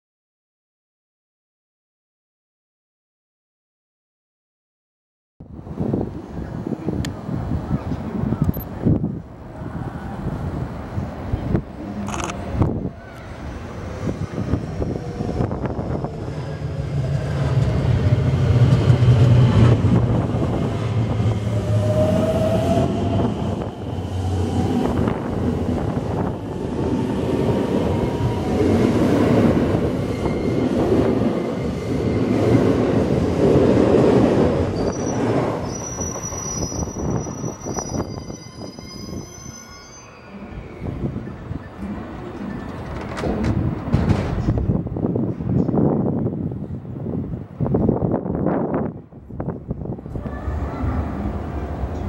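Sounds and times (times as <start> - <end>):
train wheels rumbling on rail: 5.5 - 52.0
rising train motor tone: 11.8 - 32.7
high wheel squeal: 30.0 - 30.8, 34.7 - 42.7.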